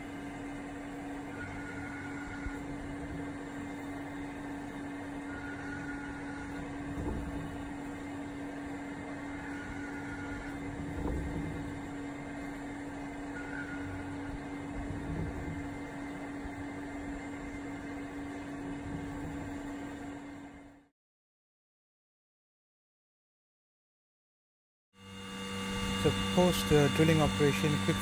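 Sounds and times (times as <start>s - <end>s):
mill spindle tone: 0.0s - 20.9s, 25.0s - 28.0s
machining noise: 25.0s - 28.0s.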